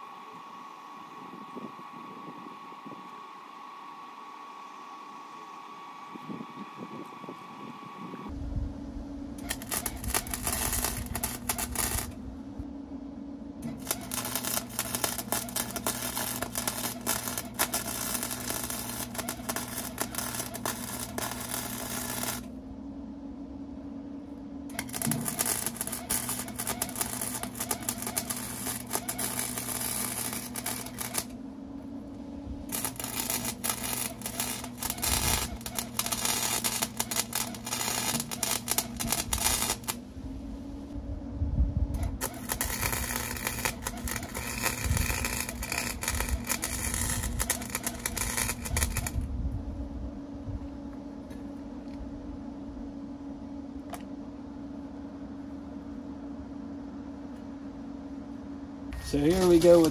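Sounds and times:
welder humming: 0:00.0 - 0:56.2, 0:57.0 - 0:59.9
welding arc crackling: 0:09.4 - 0:12.2, 0:13.6 - 0:22.5, 0:24.7 - 0:31.4, 0:32.6 - 0:40.0, 0:42.0 - 0:49.3, 0:59.0 - 0:59.9.

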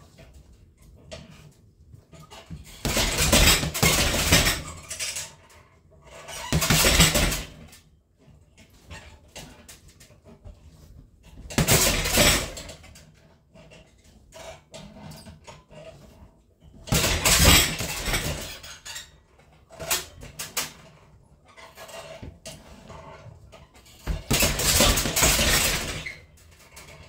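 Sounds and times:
punches on heavy bag: 0:02.6 - 0:04.7, 0:06.5 - 0:07.6, 0:11.5 - 0:12.7, 0:16.8 - 0:18.5, 0:24.1 - 0:26.0.

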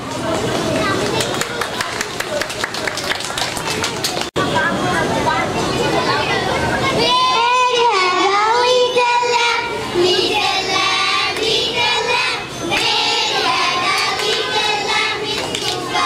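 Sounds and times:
young children singing: 0:07.0 - 0:16.0.

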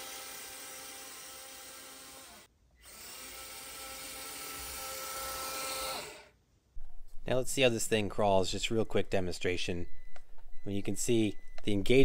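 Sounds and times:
electric motor and gears whining: 0:00.0 - 0:06.3.

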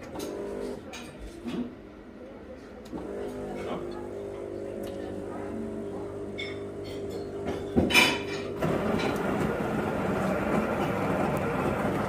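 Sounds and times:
coffee machine low hum: 0:00.0 - 0:00.8, 0:02.9 - 0:12.0
coffee machine mechanical whirr: 0:00.0 - 0:00.8, 0:02.9 - 0:12.0
coffee machine clunk: 0:06.2 - 0:12.0.

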